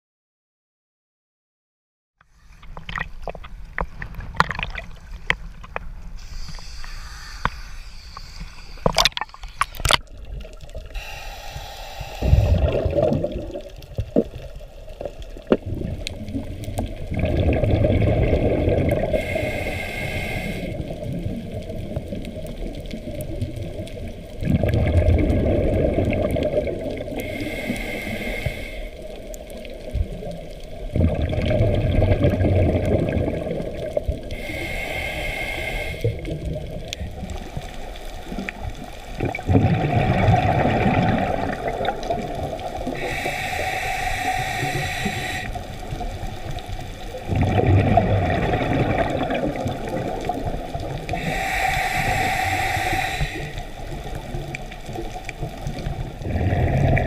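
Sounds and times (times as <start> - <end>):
water sloshing: 2.6 - 6.6
underwater breathing bubbles: 4.2 - 57.0.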